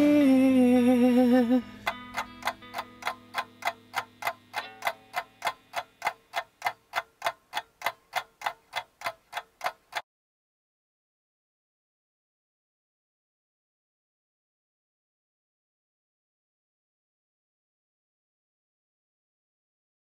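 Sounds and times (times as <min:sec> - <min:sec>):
clock ticking: 0:01.8 - 0:10.0.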